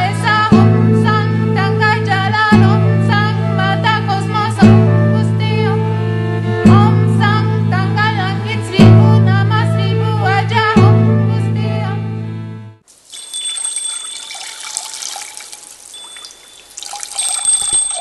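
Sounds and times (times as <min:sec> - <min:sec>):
gliding wavering melody line: 0:13.1 - 0:18.0.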